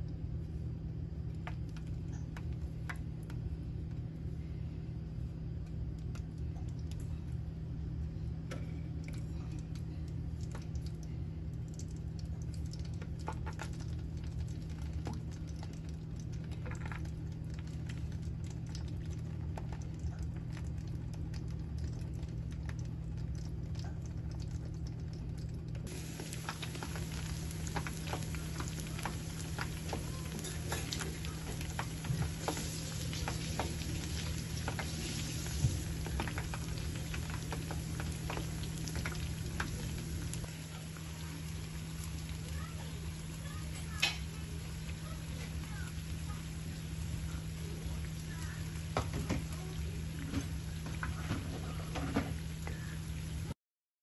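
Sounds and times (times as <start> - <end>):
low steady hum: 0.0 - 53.6
dumplings sizzling in oil: 25.8 - 53.6.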